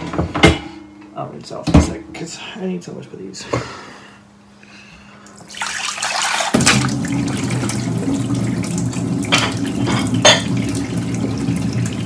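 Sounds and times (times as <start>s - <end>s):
tap water running into sink: 5.4s - 12.0s.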